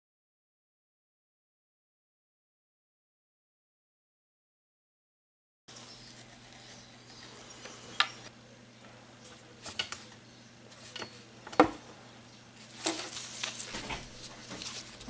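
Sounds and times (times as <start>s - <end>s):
faint steady hum: 5.7s - 15.0s.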